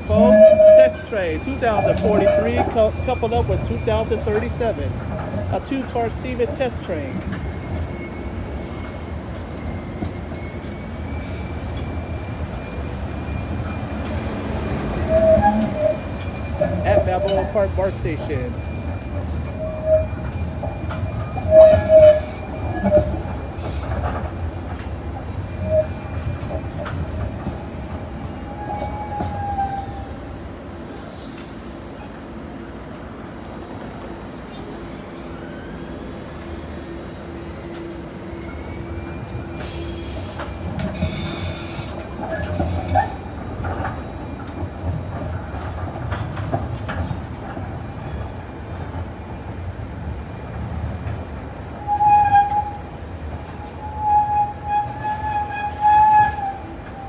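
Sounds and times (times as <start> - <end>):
wheels rumbling on rails: 0.0 - 57.0
wheels squealing on rails: 0.0 - 57.0.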